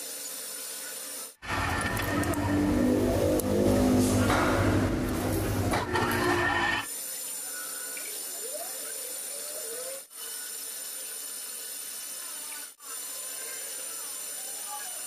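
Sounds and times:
metal lathe whine: 1.4s - 6.9s
loud machine sound: 1.4s - 7.0s.

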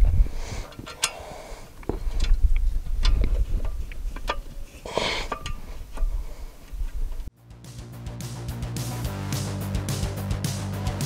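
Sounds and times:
metal parts clicking and clinking: 0.6s - 6.2s.

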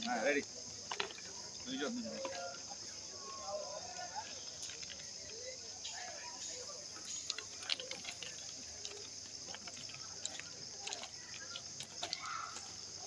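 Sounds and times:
insects droning: 0.0s - 13.0s
light clicks and ticks: 4.6s - 13.0s.

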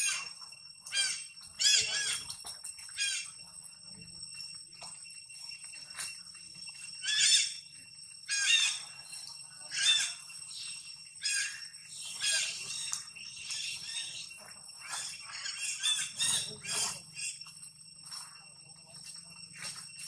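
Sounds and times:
high-pitched animal calls: 0.0s - 2.3s, 2.9s - 3.4s, 6.9s - 17.5s
high ringing drone: 0.0s - 20.0s.

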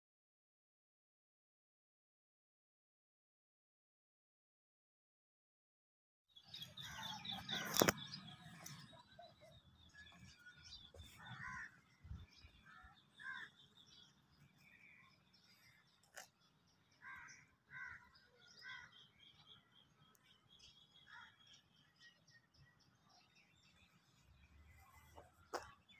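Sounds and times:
birds chirping: 6.4s - 25.9s.

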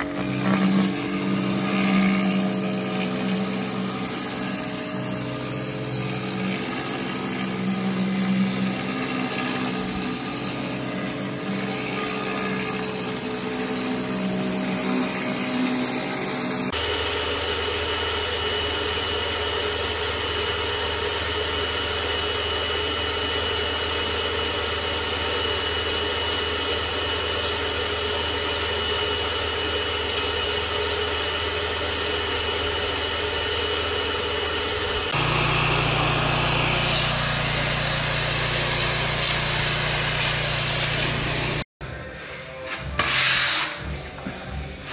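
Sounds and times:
pressure washer spraying concrete: 0.0s - 16.8s, 34.6s - 41.7s.

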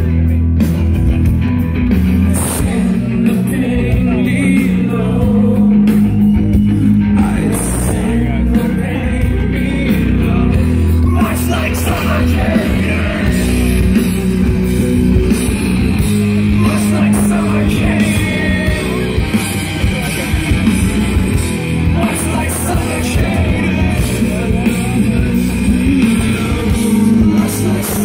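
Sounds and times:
live hard rock band: 0.0s - 28.0s
person singing: 2.4s - 6.0s, 7.1s - 14.0s, 16.5s - 19.4s, 21.9s - 28.0s.

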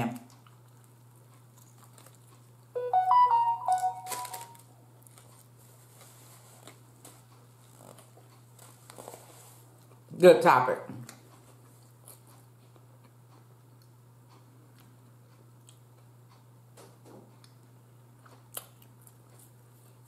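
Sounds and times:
electronic chime tune: 2.8s - 4.6s.

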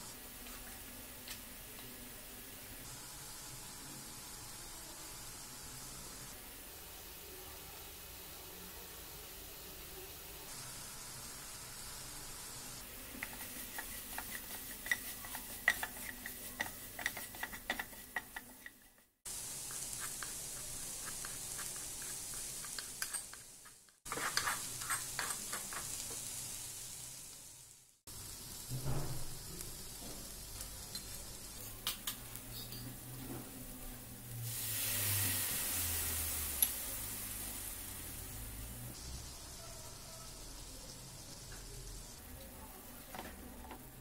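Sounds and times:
light sizzle: 0.0s - 44.0s
spoon scraping in a hot pan: 12.8s - 26.5s, 32.4s - 33.2s.

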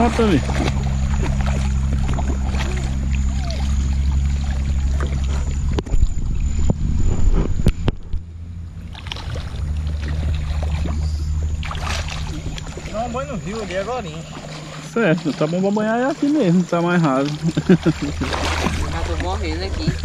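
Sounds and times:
child splashing in water: 0.0s - 5.5s, 11.6s - 15.5s, 17.2s - 19.3s
steady low hum: 0.0s - 20.0s.

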